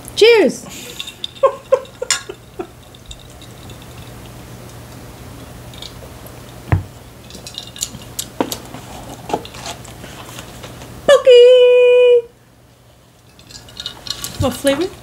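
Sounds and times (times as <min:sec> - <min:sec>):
low steady hum: 0:00.0 - 0:15.0
dull thump: 0:06.7 - 0:06.9.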